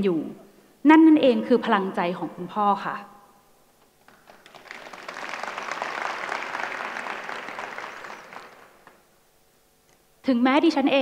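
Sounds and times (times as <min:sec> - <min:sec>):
audience applause: 0:04.0 - 0:09.1.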